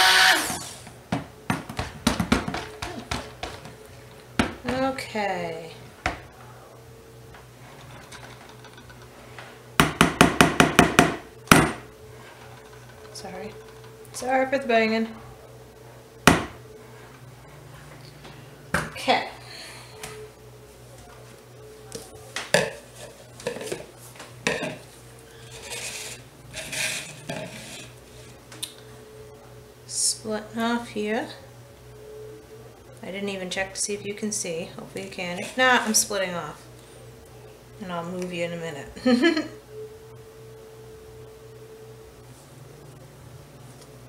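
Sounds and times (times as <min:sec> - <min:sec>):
blender knocking on plastic bowl: 0:09.8 - 0:11.8
bowl sliding across counter: 0:24.5 - 0:28.4.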